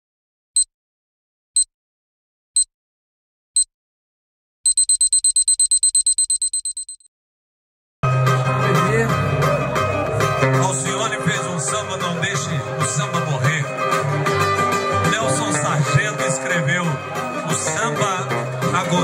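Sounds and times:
high electronic beeps: 0:04.7 - 0:07.1
live music: 0:08.0 - 0:19.0.

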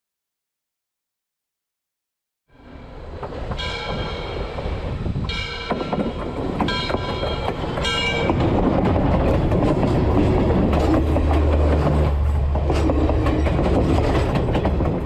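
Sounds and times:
steam locomotive chime whistle: 0:02.5 - 0:08.4
locomotive rumble: 0:02.6 - 0:15.0
wheel clatter on rails: 0:03.1 - 0:15.0.

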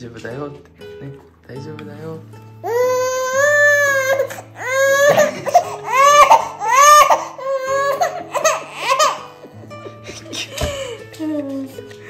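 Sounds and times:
baby crying: 0:02.6 - 0:09.6, 0:10.2 - 0:11.1.

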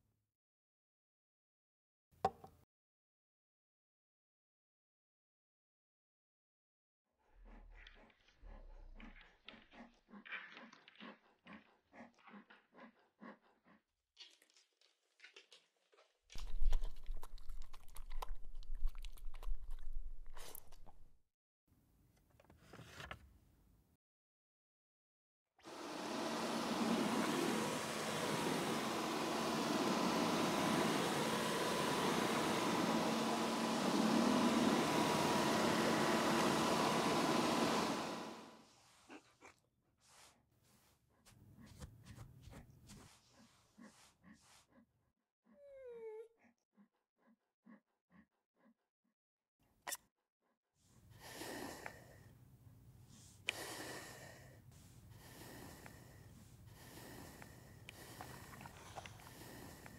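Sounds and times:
cordless vacuum running: 0:25.6 - 0:38.7, 0:56.8 - 0:59.9
brush swishing through dog fur: 0:38.5 - 0:44.7.

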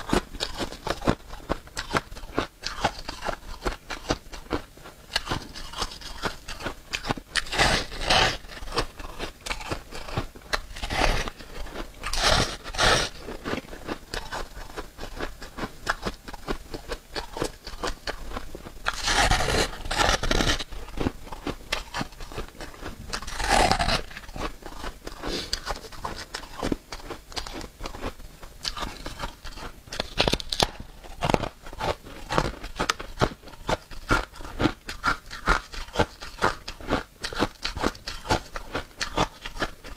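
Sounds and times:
crunchy biting and chewing: 0:00.0 - 0:39.9.

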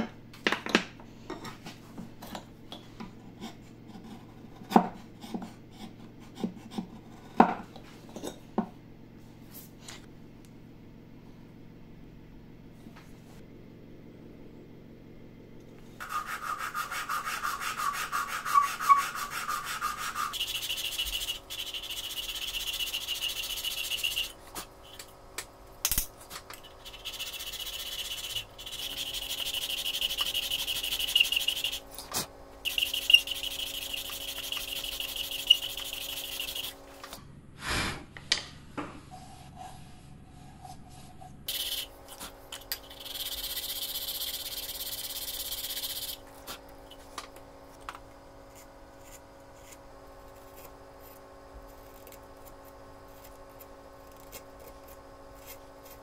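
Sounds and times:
sandpaper rubbing on wood: 0:16.0 - 0:24.4, 0:26.6 - 0:31.9, 0:32.6 - 0:36.8, 0:41.5 - 0:41.9, 0:42.8 - 0:46.2.

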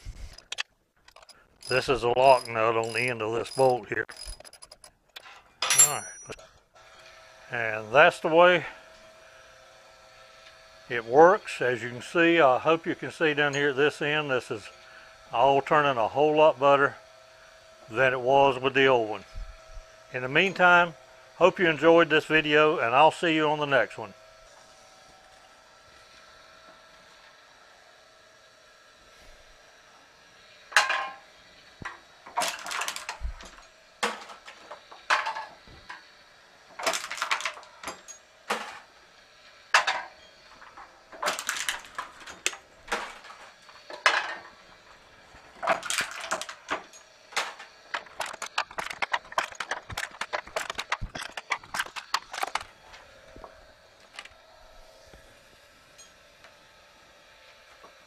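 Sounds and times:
can crusher crushing can: 0:00.4 - 0:04.9, 0:31.8 - 0:36.1, 0:36.7 - 0:38.9, 0:39.7 - 0:54.4.

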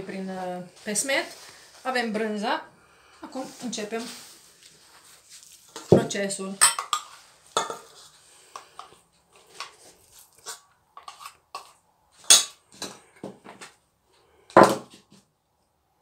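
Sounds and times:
metal spoon clinking in bowl: 0:06.6 - 0:07.9.

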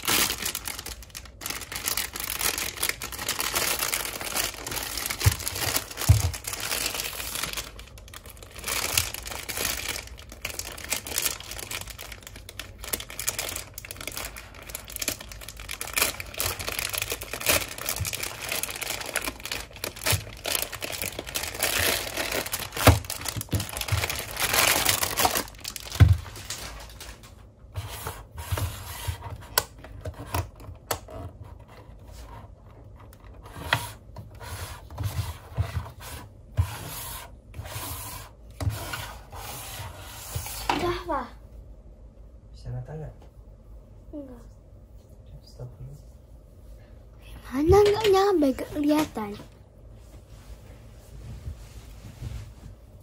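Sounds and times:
plastic bag crinkling and tearing: 0:00.0 - 0:27.3.

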